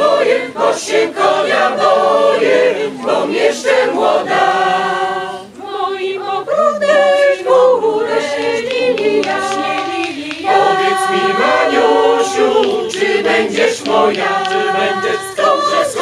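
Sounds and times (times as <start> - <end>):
mixed choir singing a cappella: 0.0 - 16.0.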